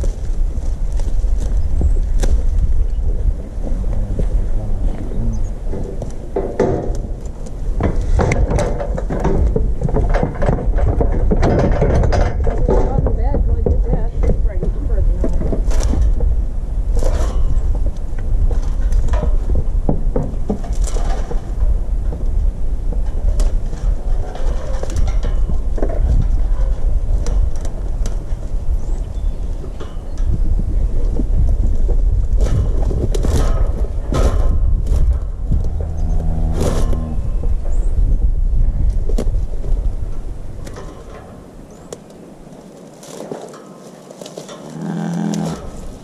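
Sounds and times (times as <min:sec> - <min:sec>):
low rumble: 0:00.0 - 0:41.0
wind buffeting microphone: 0:00.0 - 0:42.8
drawn-out pitched call: 0:03.5 - 0:05.9, 0:44.6 - 0:45.8
knocks and clanks of steel chute: 0:05.7 - 0:16.3.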